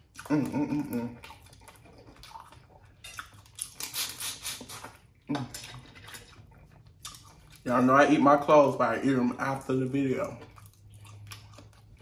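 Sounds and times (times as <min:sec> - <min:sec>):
person slurping crawfish: 0:02.9 - 0:06.5.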